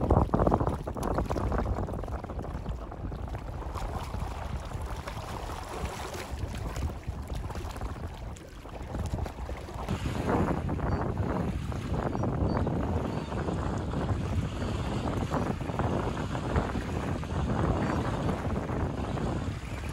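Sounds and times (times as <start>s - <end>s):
small waves washing: 0.0s - 10.7s
wind gusting on microphone: 0.0s - 19.9s.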